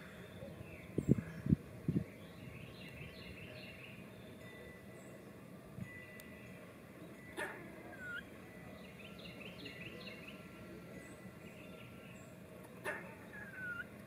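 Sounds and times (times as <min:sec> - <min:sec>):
squirrel barks: 0:07.3 - 0:08.3, 0:12.8 - 0:13.9
squirrel squeal: 0:07.4 - 0:08.3, 0:12.8 - 0:13.9.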